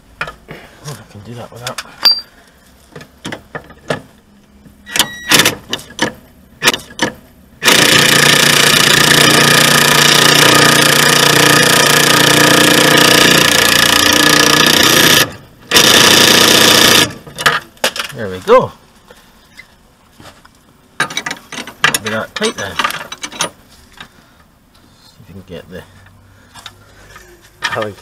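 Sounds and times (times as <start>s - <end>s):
impact wrench hammering: 2.1s - 2.3s, 5.3s - 17.2s.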